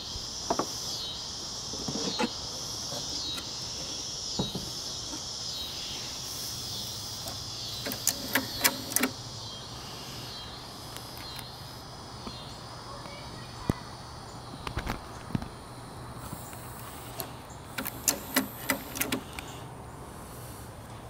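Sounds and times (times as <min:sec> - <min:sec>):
insects chirring: 0:00.0 - 0:20.9
sharp clicks and knocks: 0:07.2 - 0:09.2, 0:17.2 - 0:19.4.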